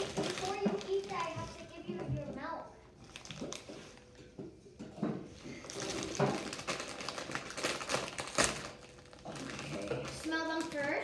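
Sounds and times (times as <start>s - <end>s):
foil snack bag crinkling: 0.0s - 1.8s, 3.0s - 4.1s, 5.6s - 11.0s.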